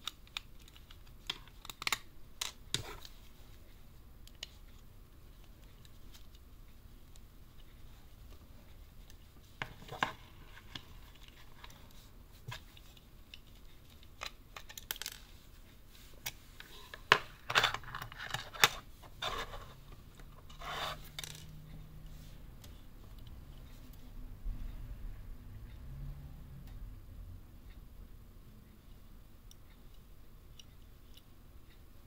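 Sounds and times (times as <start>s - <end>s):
rubbing sound: 20.5s - 21.2s.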